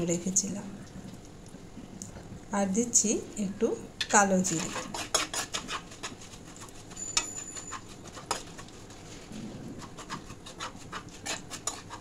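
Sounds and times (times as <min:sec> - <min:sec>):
spatula scraping metal pan: 0:04.4 - 0:09.0, 0:09.8 - 0:12.0.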